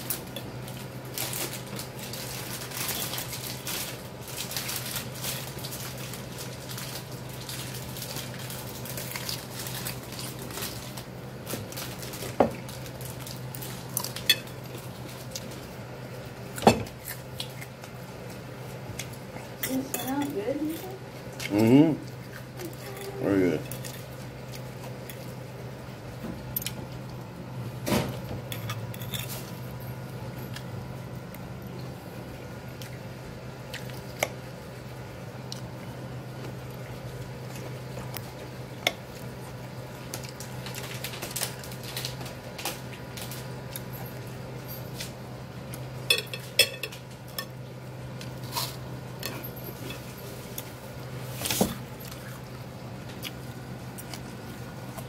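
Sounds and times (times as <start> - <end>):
steady low hum: 0.0 - 55.0
fork clinking on ceramic plate: 46.1 - 47.5.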